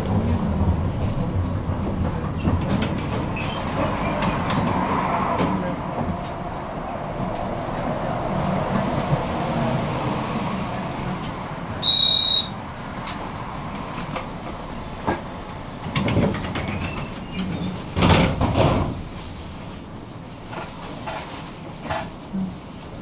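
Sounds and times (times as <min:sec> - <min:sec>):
tram rolling noise: 0:00.0 - 0:23.0
clatter with high squeal: 0:02.0 - 0:04.4, 0:16.3 - 0:18.7.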